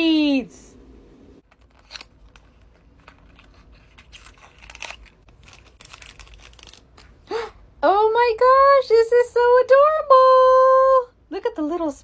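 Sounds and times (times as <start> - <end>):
crinkly wrapper pulled open: 1.5 - 7.2.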